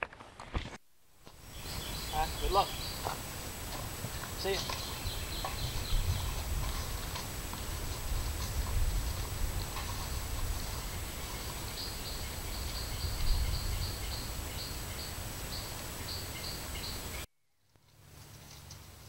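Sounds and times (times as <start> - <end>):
steady hiss: 0.9 - 17.3.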